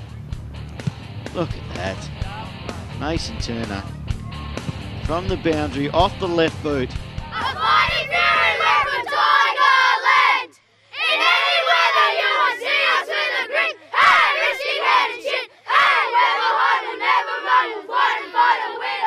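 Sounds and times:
boys chanting loudly: 7.3s - 19.0s.

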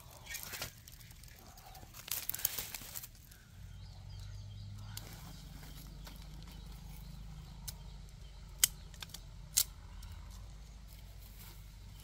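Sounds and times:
crackling and rustling: 0.0s - 3.5s
faint bird chirps: 0.0s - 12.0s
steady low hum: 0.0s - 12.0s.

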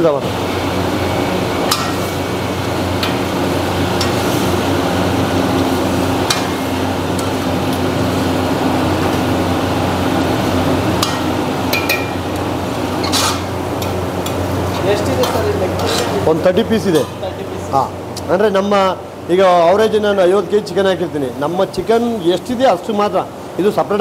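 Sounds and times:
loud mechanical hum: 0.0s - 24.0s.

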